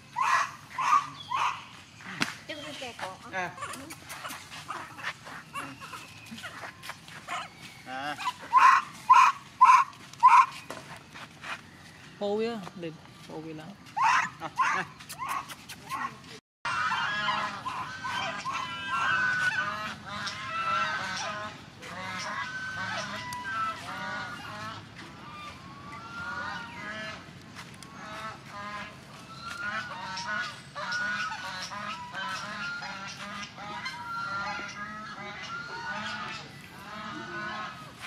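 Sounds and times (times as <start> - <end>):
honking animal calls: 3.4 - 10.6, 16.7 - 27.2, 28.0 - 38.0.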